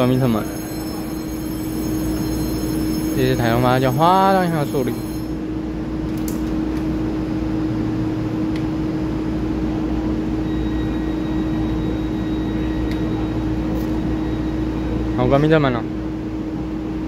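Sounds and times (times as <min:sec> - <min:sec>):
electric train humming: 0:00.0 - 0:10.3.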